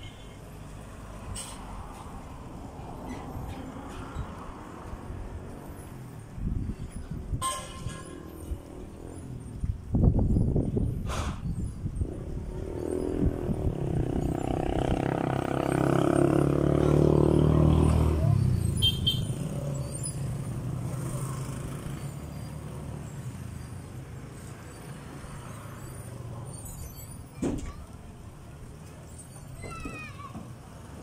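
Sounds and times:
steady traffic hum: 0.0s - 31.0s
vehicle engine passing by: 11.9s - 27.3s.

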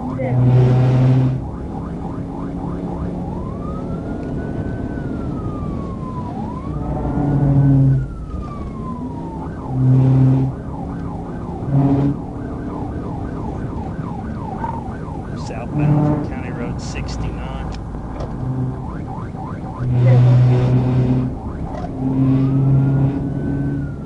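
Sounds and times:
police siren yelp and wail: 0.0s - 24.0s
road noise: 0.0s - 24.0s
loud low horn blasts: 0.2s - 1.4s, 6.8s - 8.0s, 9.7s - 10.6s, 11.6s - 12.3s, 15.4s - 17.8s, 18.4s - 18.9s, 19.8s - 21.4s, 22.0s - 23.6s.

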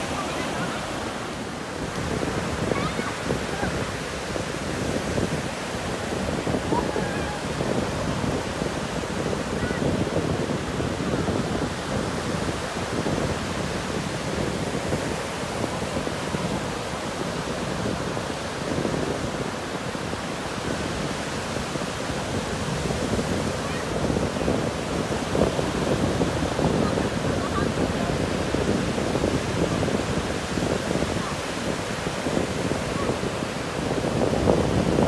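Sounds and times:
ocean surf breaking: 0.0s - 35.0s
wind buffeting microphone: 0.0s - 35.0s.

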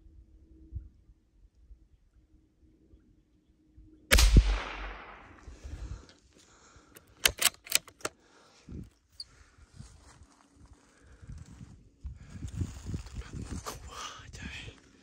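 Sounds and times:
gunshot with echo: 4.1s - 5.8s
sharp clicks: 7.0s - 8.1s.

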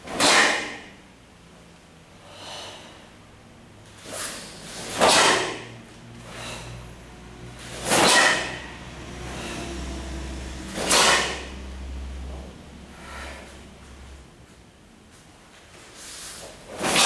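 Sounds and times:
sharp swishes of movement: 3.9s - 6.7s, 7.6s - 11.6s.

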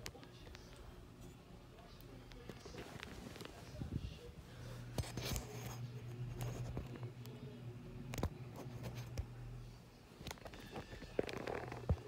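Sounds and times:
ceiling fan motor hum: 0.0s - 12.0s.

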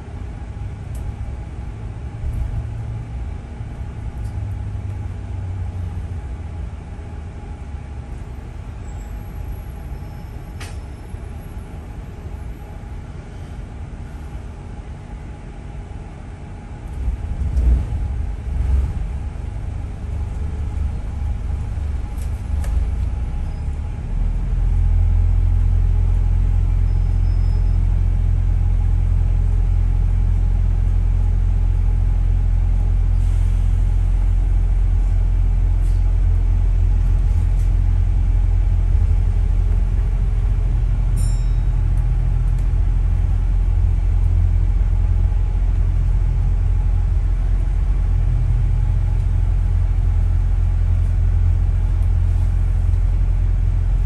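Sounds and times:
bus engine and road rumble: 0.0s - 54.0s
faint click: 10.6s - 10.8s.

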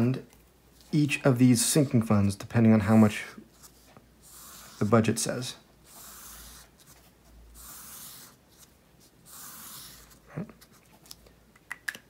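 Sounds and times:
marker scratching on paper: 3.5s - 10.8s.

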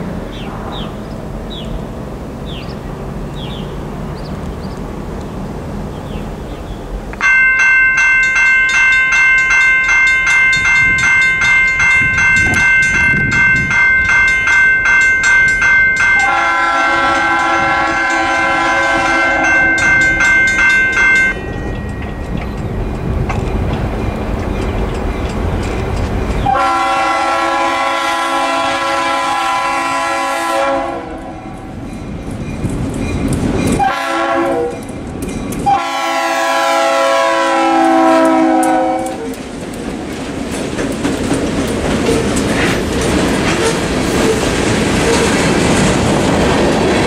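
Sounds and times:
lower bell tones: 7.2s - 25.4s
railroad crossing bells ringing: 7.2s - 39.4s.

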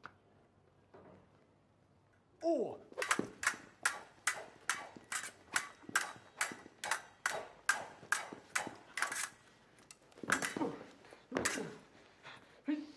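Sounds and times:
swords clashing: 2.9s - 9.4s, 10.3s - 11.9s.

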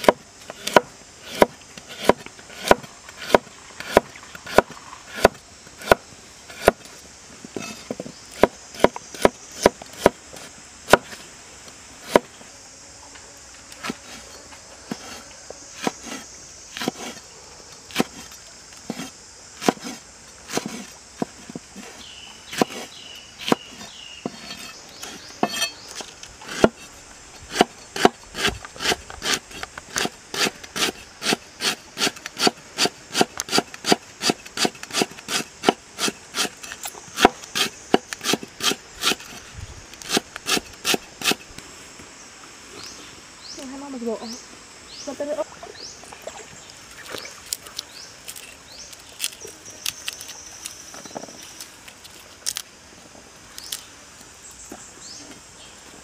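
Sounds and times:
knife chopping on wooden board: 0.0s - 6.8s, 18.9s - 20.9s, 22.5s - 25.7s, 26.5s - 26.9s, 27.5s - 29.4s
high insect drone: 0.0s - 56.0s.

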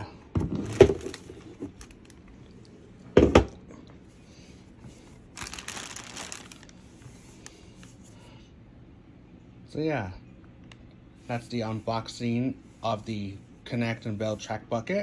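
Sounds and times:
plastic packaging crinkling: 0.5s - 2.5s, 5.2s - 7.9s.

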